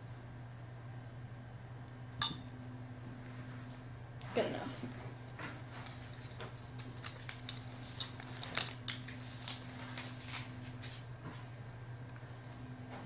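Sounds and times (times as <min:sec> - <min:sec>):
steady low hum: 0:00.0 - 0:13.0
paper or foil rustling: 0:05.8 - 0:11.1.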